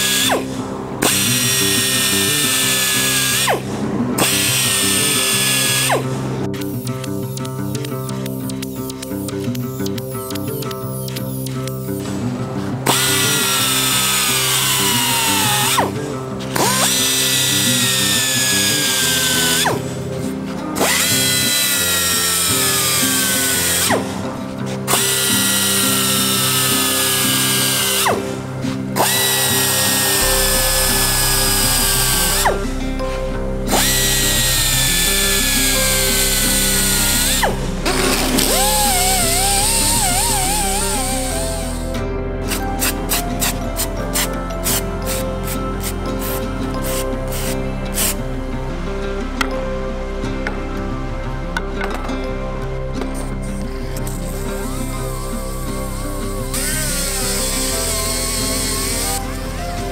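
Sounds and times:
belt sander grinding steel: 0.0 - 6.8, 12.8 - 41.9, 54.1 - 59.9
background music: 0.0 - 59.9.

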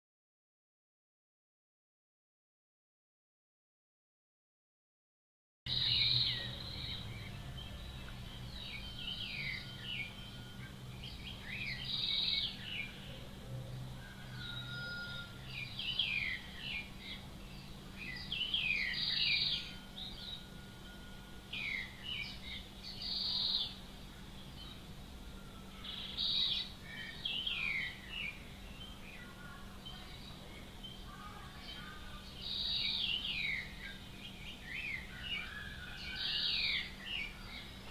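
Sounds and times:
low steady hum: 5.7 - 37.9
nightingale singing: 5.7 - 37.9.

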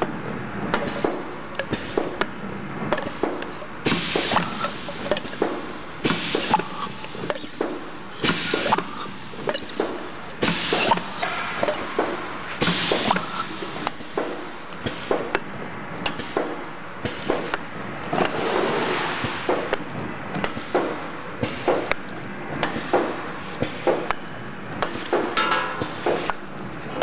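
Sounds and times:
steady mechanical din: 9.4 - 15.4
metallic clanks and knocks: 25.3 - 26.3.

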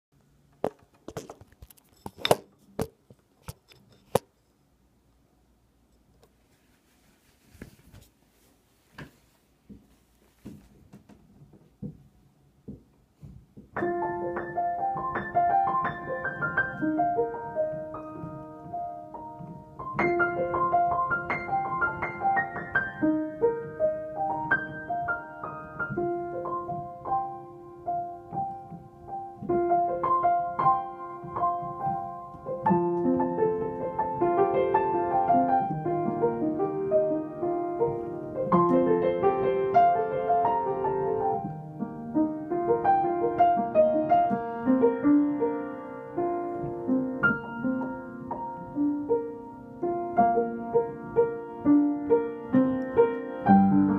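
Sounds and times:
upright piano melody: 13.7 - 53.9.

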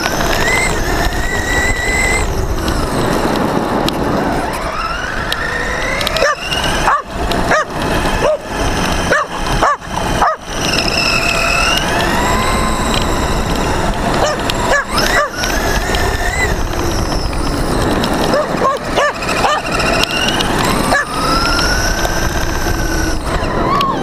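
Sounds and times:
electric motor whining: 0.0 - 24.0
tyres on gravel: 0.0 - 24.0
dog barking: 6.2 - 8.4, 9.1 - 10.4, 14.2 - 15.3, 18.3 - 19.7.

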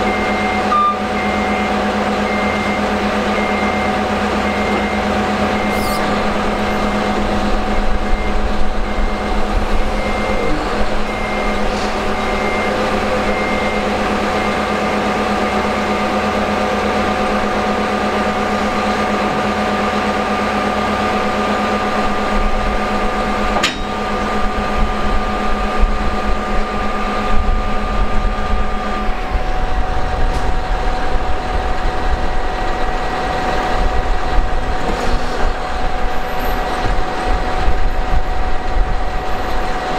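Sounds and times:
reversing alarm beeping: 0.0 - 34.6
bulldozer diesel engine running: 0.0 - 39.9.

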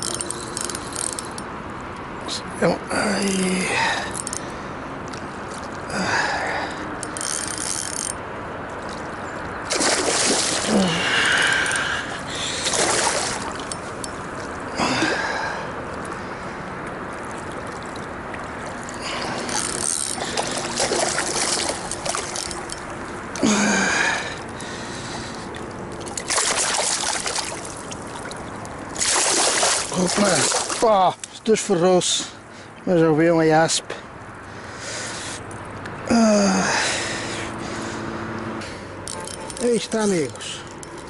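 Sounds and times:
fishing reel winding: 0.0 - 1.4, 7.0 - 8.2, 19.5 - 20.5
fish splashing: 8.7 - 15.6, 17.0 - 23.4, 25.5 - 31.0.

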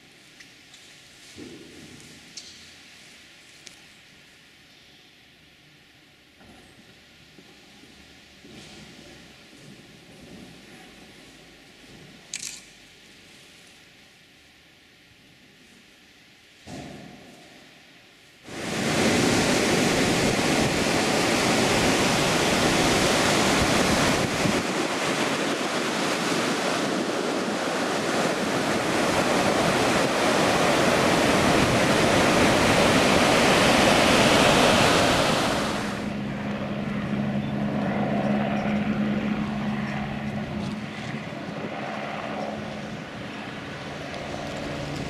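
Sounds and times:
surf breaking: 18.5 - 36.2
wind buffeting microphone: 18.5 - 37.2, 37.8 - 45.0
low engine hum: 18.5 - 45.0.

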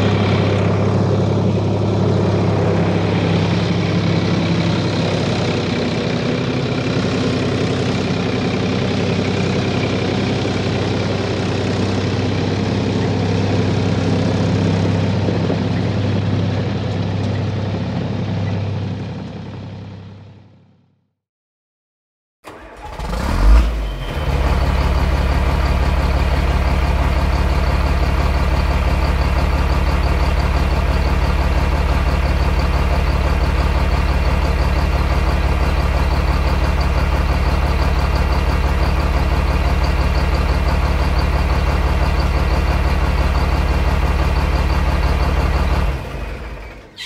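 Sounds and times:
heavy vehicle engine running: 0.0 - 21.0, 22.5 - 47.0.

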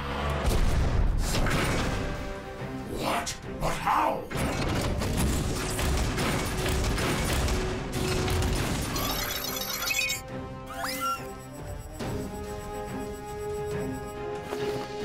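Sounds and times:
background music: 0.0 - 15.0
high electronic tones: 8.9 - 14.6.

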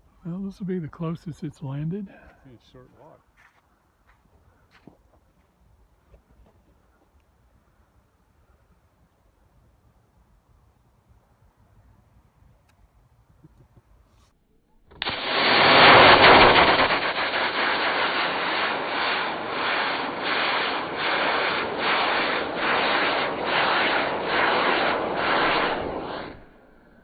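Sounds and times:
rocket motor rushing hiss: 15.0 - 26.6.

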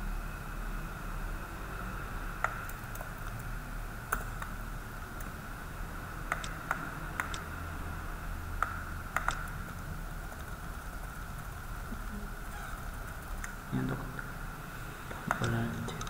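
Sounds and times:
keyboard and mouse clicks: 2.4 - 3.5, 6.3 - 7.5, 8.6 - 11.6, 13.0 - 13.6, 15.1 - 16.0.

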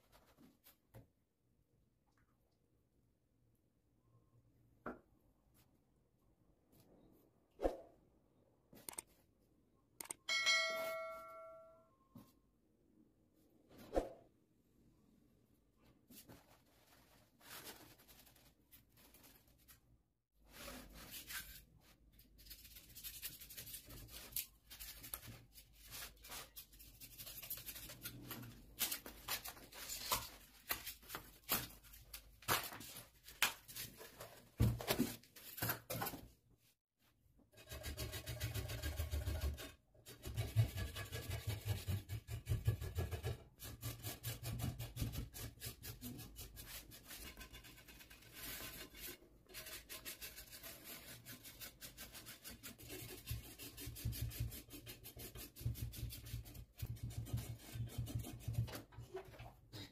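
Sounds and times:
rubbing and scraping: 37.5 - 59.6.

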